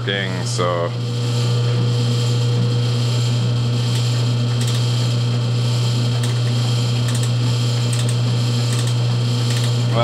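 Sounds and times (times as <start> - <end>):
faint clicks of feed mechanism: 7.1 - 9.8.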